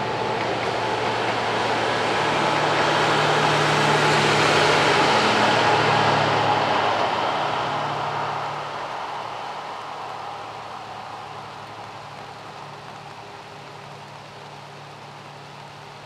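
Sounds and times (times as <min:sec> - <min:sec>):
diesel train passing: 0:00.0 - 0:11.4.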